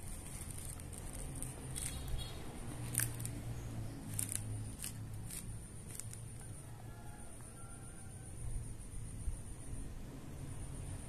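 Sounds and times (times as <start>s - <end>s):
paper rustling: 0.0s - 2.2s
steady low hum: 0.0s - 11.0s.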